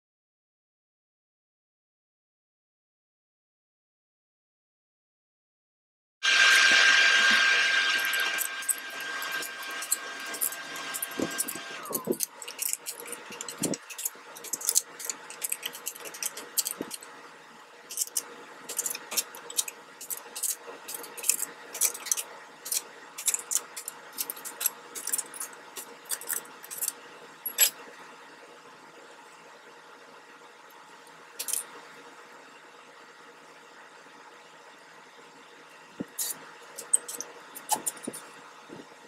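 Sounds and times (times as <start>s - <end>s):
power drill winding down: 6.2s - 12.2s.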